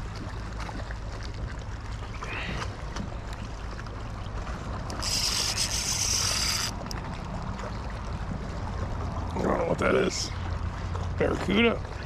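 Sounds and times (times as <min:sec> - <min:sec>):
wind rumble on microphone: 0:00.0 - 0:09.9
lapping water: 0:00.0 - 0:12.0
fishing reel drag buzzing: 0:04.9 - 0:06.9.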